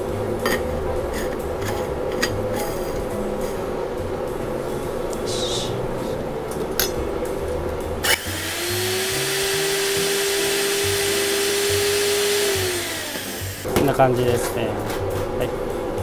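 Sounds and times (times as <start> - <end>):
electric spice mill grinding: 8.0 - 13.7.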